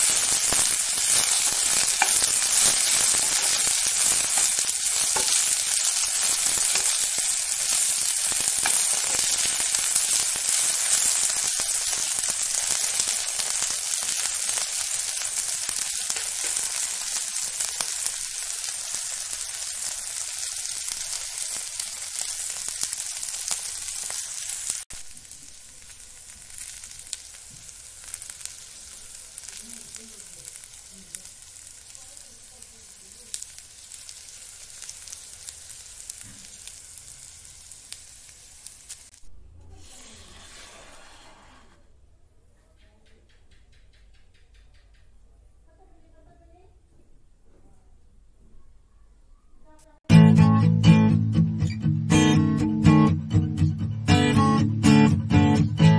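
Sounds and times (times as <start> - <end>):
food sizzling in frying pan: 0.0 - 41.7.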